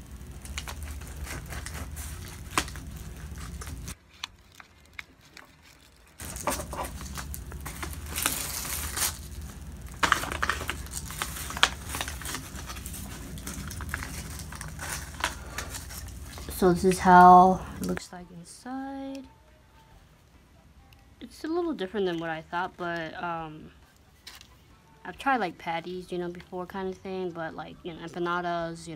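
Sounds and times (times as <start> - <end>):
paper wrapper crinkling: 0.0 - 18.0
crust crackling: 0.0 - 18.1.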